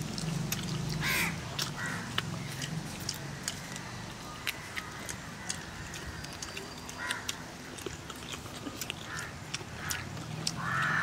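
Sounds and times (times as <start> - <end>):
chewing clicks: 0.0 - 11.0
crow cawing: 1.0 - 2.5, 9.1 - 11.0.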